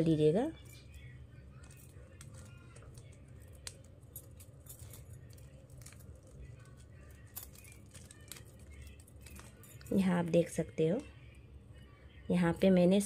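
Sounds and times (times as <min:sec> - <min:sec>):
low steady hum: 0:00.0 - 0:13.0
plastic strips clicking and rattling: 0:01.6 - 0:09.9.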